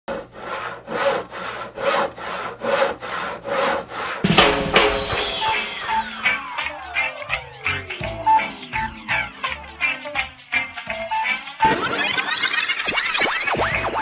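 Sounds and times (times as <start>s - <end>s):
rasping sawing strokes: 0.1s - 7.3s
music with falling whistle glide: 4.5s - 14.0s.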